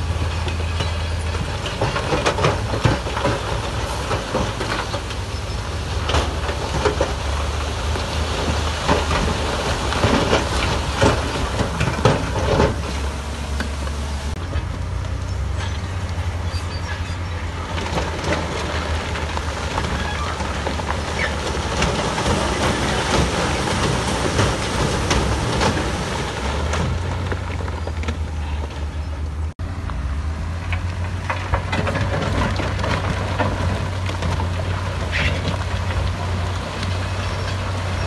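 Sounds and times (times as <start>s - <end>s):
metal and rock clanking: 0.0s - 29.5s
diesel earthmoving machine rumbling: 0.0s - 38.0s.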